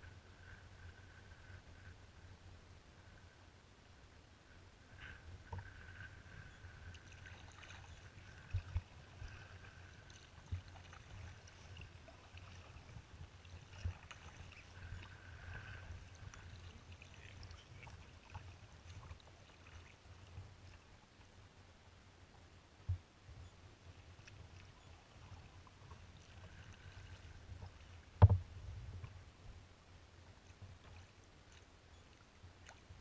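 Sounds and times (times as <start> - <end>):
water splashing against hull: 5.5 - 20.9.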